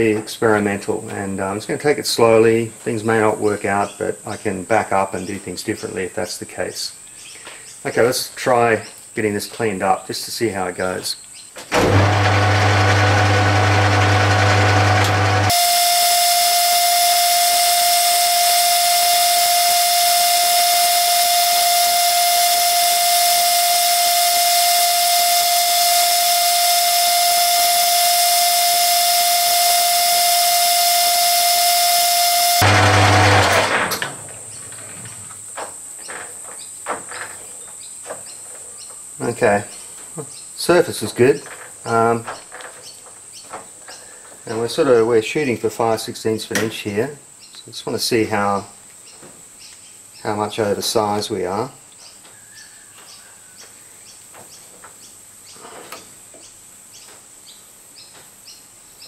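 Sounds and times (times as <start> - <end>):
metal lathe spinning down: 11.8 - 34.0
high-pitched chirring: 13.6 - 33.6
high-pitched whine: 15.1 - 34.1.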